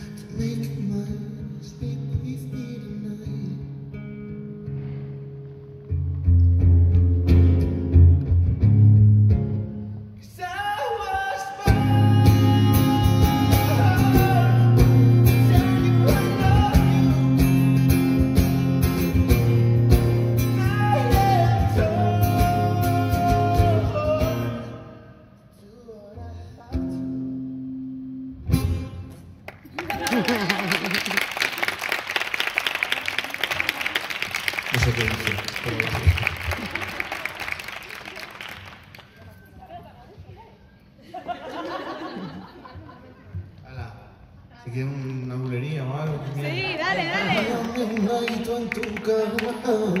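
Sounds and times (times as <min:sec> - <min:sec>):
amplified acoustic guitar: 0:00.0 - 0:25.3, 0:26.2 - 0:29.5
person singing: 0:10.2 - 0:17.8, 0:20.4 - 0:25.0.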